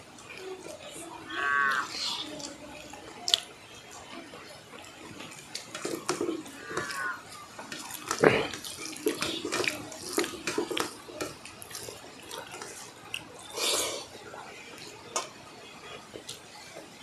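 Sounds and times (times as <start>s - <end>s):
chewing and lip smacks: 2.2s - 3.5s, 4.7s - 13.8s
fingers squelching rice on plates: 4.8s - 14.1s.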